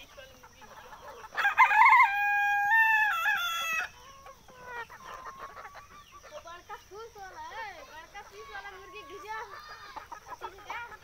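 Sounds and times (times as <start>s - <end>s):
hens clucking: 0.0s - 11.0s
rooster crowing: 1.4s - 4.0s.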